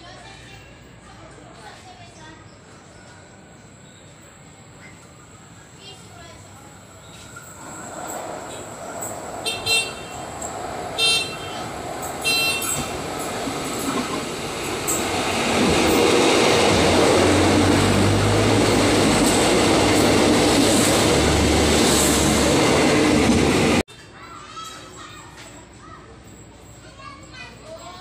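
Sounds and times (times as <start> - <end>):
train rumbling past: 0.2 - 23.9
train horn blasts: 9.4 - 10.4, 11.0 - 12.9.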